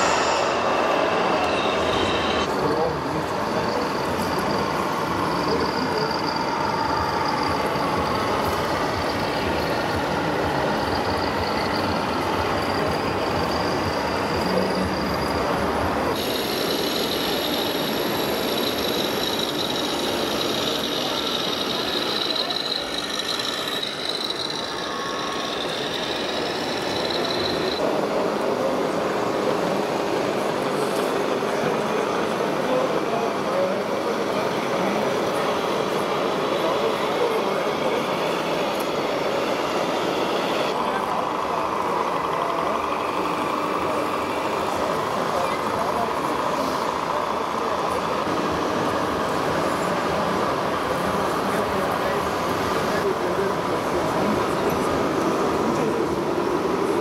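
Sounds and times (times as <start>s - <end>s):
high thin whine: 0.0s - 28.2s
exhibition hall background noise: 0.0s - 57.0s
toy truck running: 2.3s - 27.8s, 31.7s - 57.0s.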